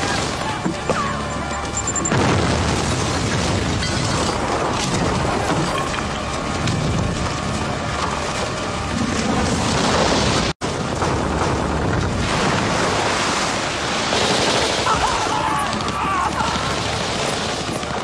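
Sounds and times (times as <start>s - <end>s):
action film rumble and noise: 0.0s - 18.0s
film music: 4.2s - 10.4s.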